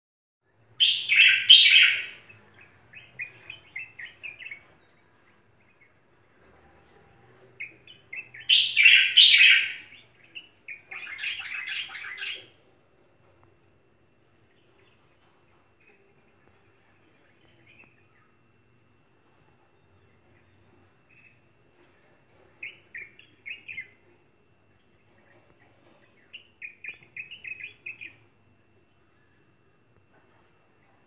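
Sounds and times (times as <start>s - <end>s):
bulbul singing: 0.6s - 6.3s, 7.5s - 12.6s, 22.5s - 28.4s.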